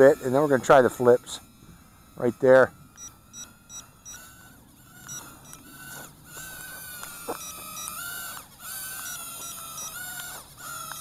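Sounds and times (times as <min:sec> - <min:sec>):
quadcopter motors whining: 0:00.0 - 0:11.0
short high beeps: 0:03.0 - 0:04.3, 0:07.3 - 0:08.0.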